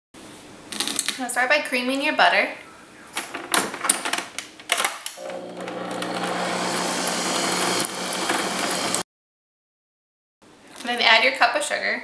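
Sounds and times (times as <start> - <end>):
beaters creaming butter in bowl: 5.2 - 9.0
stand mixer motor humming: 5.2 - 9.0.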